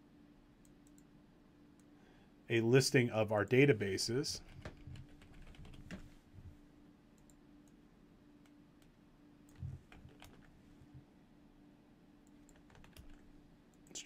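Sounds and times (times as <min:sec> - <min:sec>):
faint steady hum: 0:00.0 - 0:14.0
keyboard and mouse clicks: 0:09.5 - 0:10.5.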